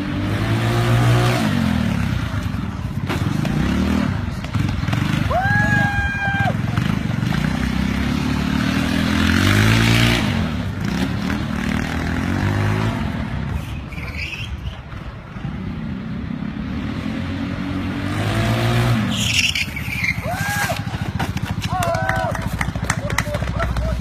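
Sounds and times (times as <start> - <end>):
small motorbike engines revving: 0.0 - 24.0.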